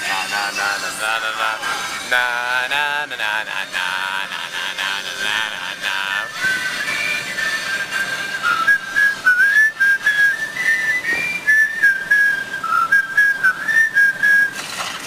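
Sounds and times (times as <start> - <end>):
man whistling a tune: 6.2 - 14.6.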